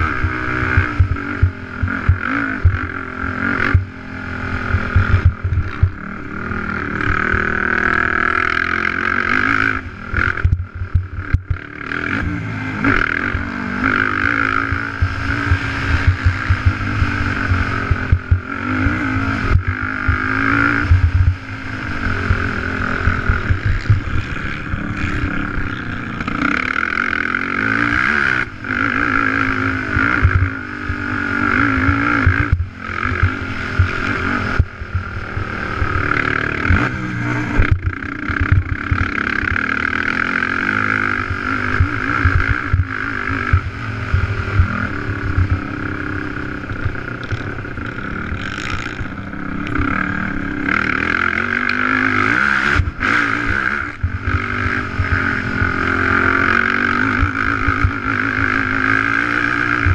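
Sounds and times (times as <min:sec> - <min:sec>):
quad engine revving: 0:00.0 - 0:59.9.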